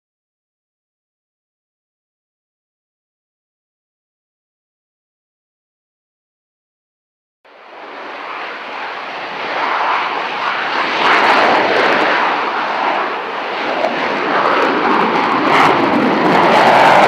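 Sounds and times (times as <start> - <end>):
loud rushing jet noise: 7.5 - 17.0.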